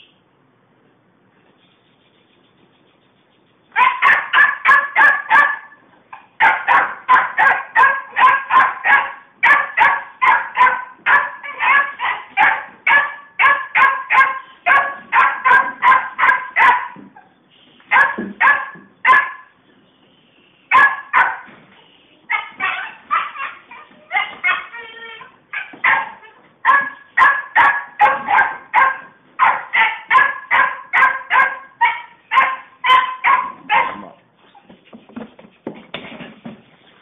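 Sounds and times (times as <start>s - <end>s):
puppy barking: 3.7s - 5.8s, 6.4s - 17.2s, 17.9s - 19.6s, 20.7s - 21.5s, 22.3s - 34.2s.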